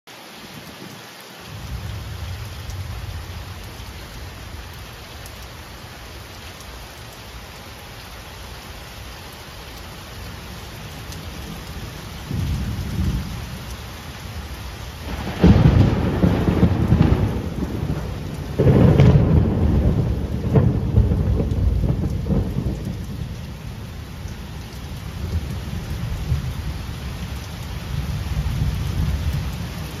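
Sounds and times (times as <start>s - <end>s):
thunder rumbling and cracking: 11.2s - 30.0s.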